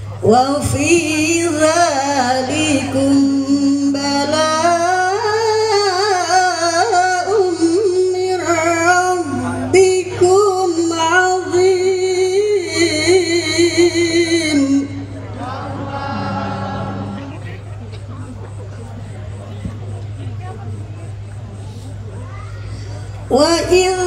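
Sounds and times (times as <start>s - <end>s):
woman reciting over loudspeakers: 0.0s - 17.4s, 22.7s - 24.0s.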